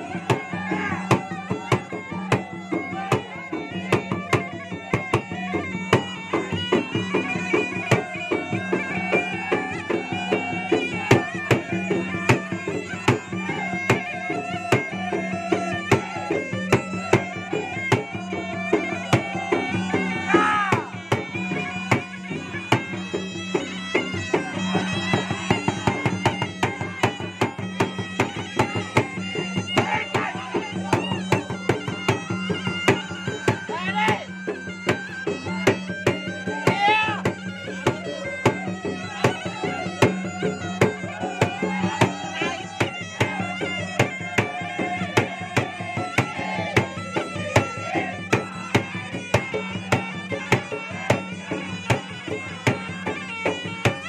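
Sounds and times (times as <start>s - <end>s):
nasal reed shawm melody: 0.0s - 54.0s
barrel drums beaten rapidly: 36.5s - 52.0s.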